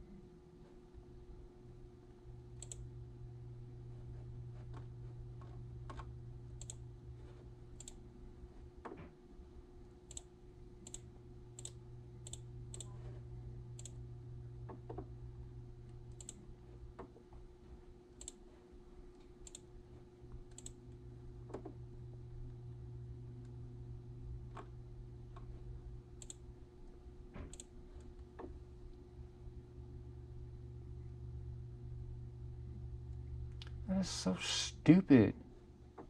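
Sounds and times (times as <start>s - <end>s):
low electrical hum: 0.0s - 36.0s
sharp clicks: 2.6s - 2.8s, 26.2s - 26.4s.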